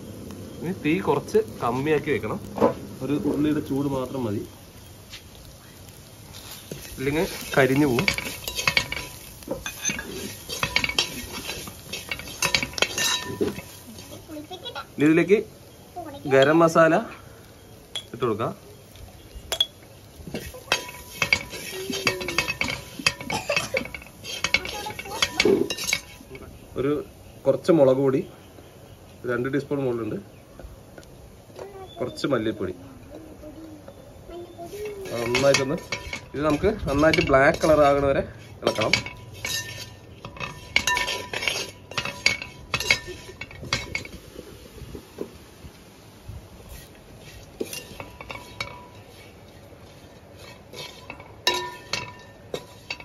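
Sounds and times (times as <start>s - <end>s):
spoon scraping a metal pot: 6.7s - 14.1s, 20.4s - 26.3s, 34.8s - 38.0s, 38.6s - 44.2s, 46.7s - 49.6s, 50.2s - 53.0s.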